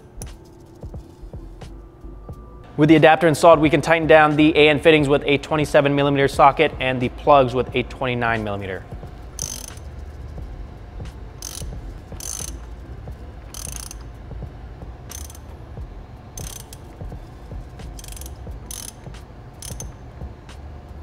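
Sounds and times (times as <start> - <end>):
ratchet wrench clicking: 0.0 - 0.4, 9.2 - 10.2, 11.3 - 14.2, 15.1 - 15.5, 16.4 - 20.0.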